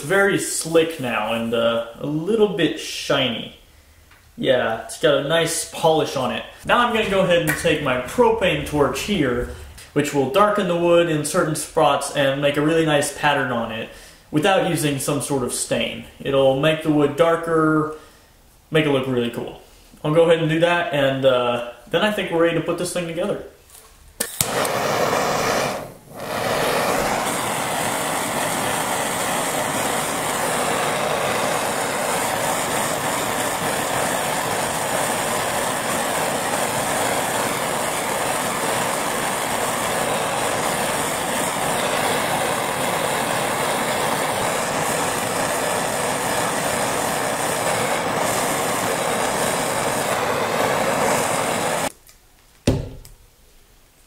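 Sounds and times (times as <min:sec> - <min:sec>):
propane torch flame roaring: 0:04.8 - 0:13.5, 0:24.2 - 0:51.9.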